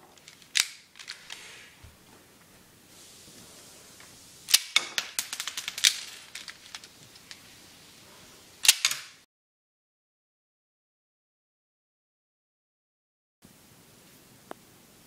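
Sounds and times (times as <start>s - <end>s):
toy pistol snap: 0.4s - 1.1s, 4.5s - 5.2s, 8.6s - 9.2s
rattle of quick clicks: 4.5s - 7.4s.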